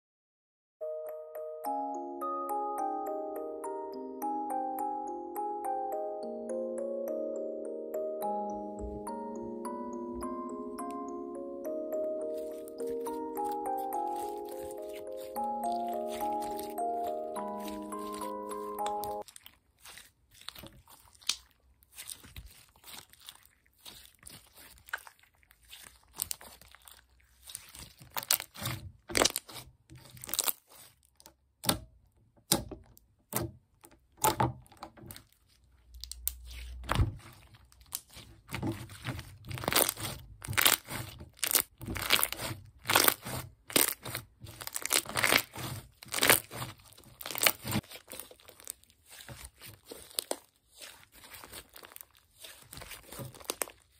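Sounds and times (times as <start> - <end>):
sticky slime pops and crackles: 18.8 - 31.8, 36.0 - 53.9.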